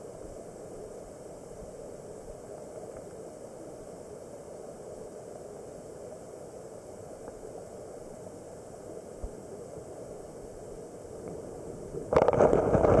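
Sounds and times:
underwater stream rush: 6.7s - 13.0s.

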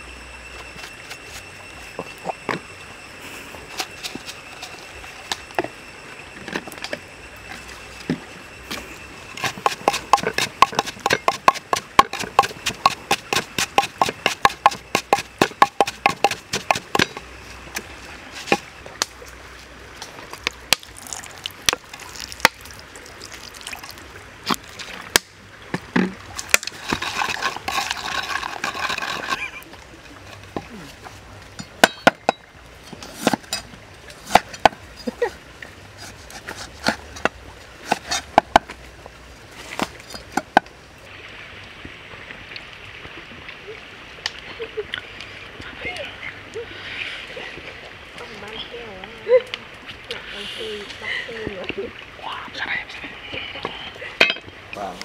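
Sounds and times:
wooden pestle pounding in mortar: 9.5s - 17.0s.

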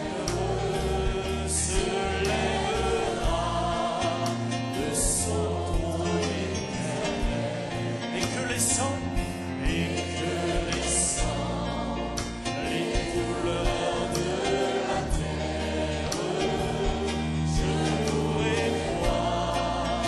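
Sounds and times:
choir singing a hymn: 0.0s - 20.0s
sustained bass notes: 0.0s - 20.0s.

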